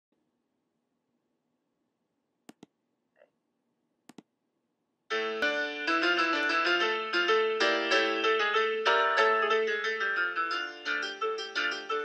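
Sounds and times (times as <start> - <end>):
quick clicks: 4.1 - 4.3
piano music: 5.1 - 12.0.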